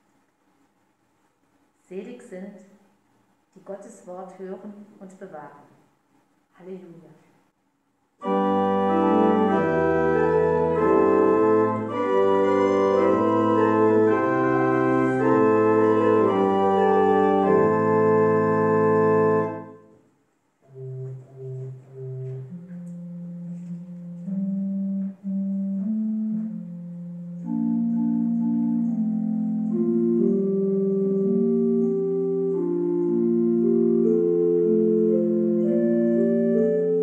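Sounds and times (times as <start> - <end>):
organ playing chords: 8.2 - 37.0.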